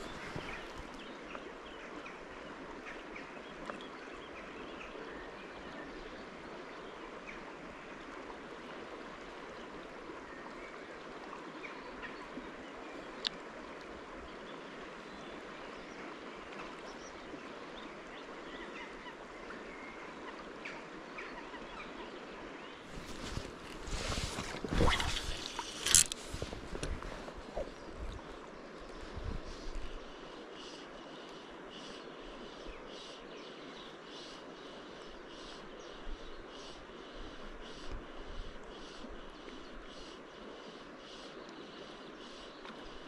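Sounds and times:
river water rushing: 0:22.4 - 0:32.4.

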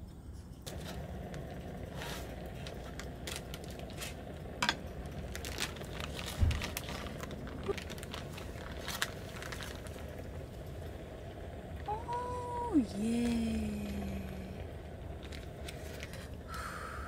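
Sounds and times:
plastic pouch crinkling: 0:00.7 - 0:10.8, 0:15.1 - 0:16.4.

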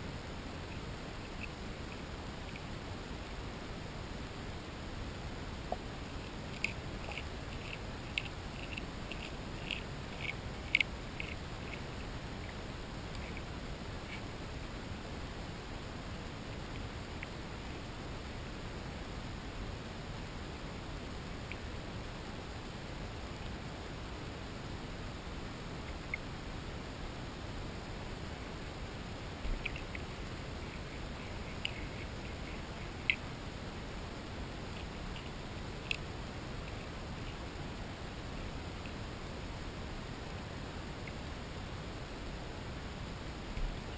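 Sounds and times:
steady hiss: 0:00.0 - 0:43.9
fish crunching food underwater: 0:05.7 - 0:14.4.

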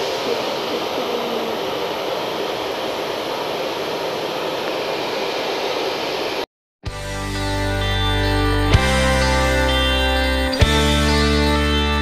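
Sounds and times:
hair dryer blowing: 0:00.0 - 0:06.5.

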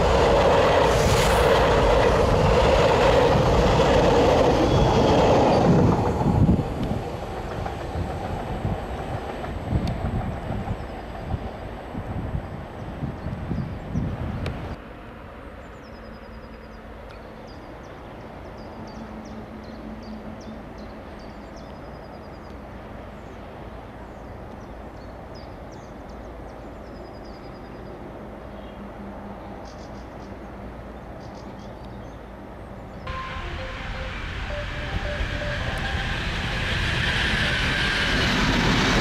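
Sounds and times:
distant train rumble: 0:00.0 - 0:14.8, 0:32.3 - 0:39.0
loud train sound: 0:00.0 - 0:15.5, 0:33.0 - 0:39.0.

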